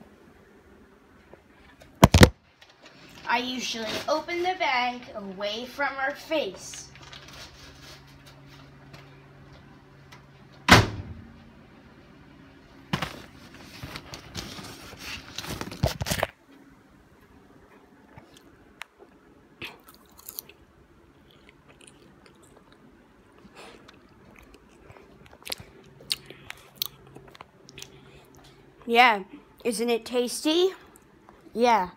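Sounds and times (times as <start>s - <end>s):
paper bag crinkling and tearing: 6.9s - 8.0s, 13.0s - 16.3s
popcorn being chewed: 18.1s - 28.9s.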